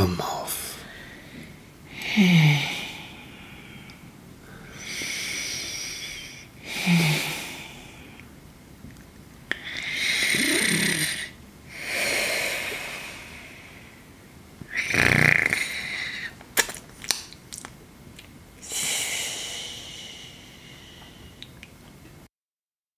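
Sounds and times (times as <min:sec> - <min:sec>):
person snoring: 0:01.9 - 0:03.7, 0:04.5 - 0:08.2, 0:09.5 - 0:13.8, 0:14.7 - 0:16.4, 0:18.6 - 0:21.4
loud snort: 0:09.9 - 0:12.7, 0:14.7 - 0:15.9
mouth clicks and smacks: 0:16.3 - 0:18.4.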